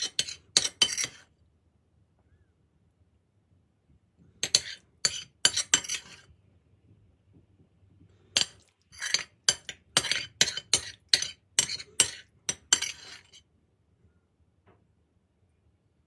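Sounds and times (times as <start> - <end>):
metal spoon scraping ceramic plate: 0.0 - 1.3, 4.4 - 6.3, 8.3 - 13.4.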